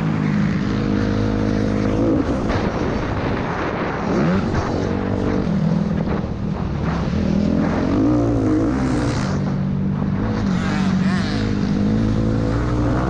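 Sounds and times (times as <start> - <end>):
motocross bike engine: 0.0 - 13.0.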